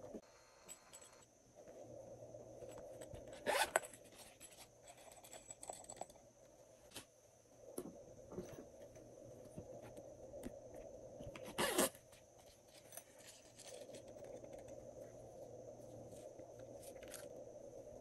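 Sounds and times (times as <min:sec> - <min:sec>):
faint steady hum: 0:00.0 - 0:18.0
zipper pulled open: 0:03.3 - 0:03.9, 0:11.4 - 0:12.0
handling clicks and rustles: 0:11.2 - 0:17.4.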